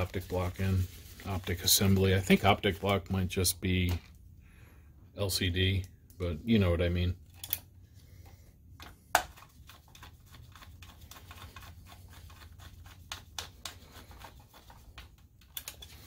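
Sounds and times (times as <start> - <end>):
plastic and metal parts clicking: 7.3 - 7.6, 15.4 - 16.0.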